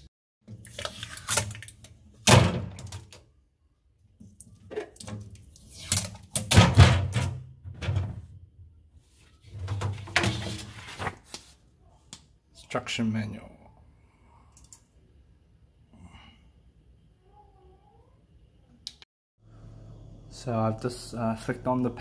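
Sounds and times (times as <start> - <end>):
plastic fridge drawers rattling: 9.5 - 11.0.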